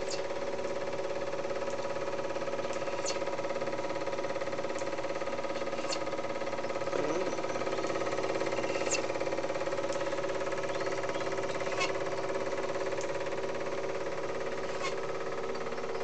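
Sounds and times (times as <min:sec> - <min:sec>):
film projector whirring: 0:00.0 - 0:16.0
film transport chatter: 0:00.0 - 0:16.0
sharp clicks: 0:09.8 - 0:10.2, 0:13.0 - 0:13.2.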